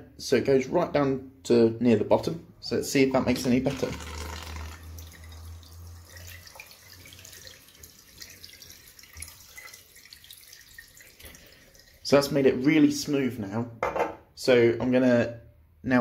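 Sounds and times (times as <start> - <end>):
water trickling into sink: 3.6 - 12.7.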